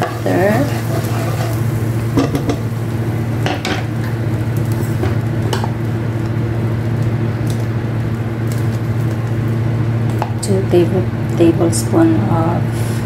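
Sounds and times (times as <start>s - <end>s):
butter sizzling in frying pan: 0.0s - 10.4s
steady low hum: 0.0s - 13.0s.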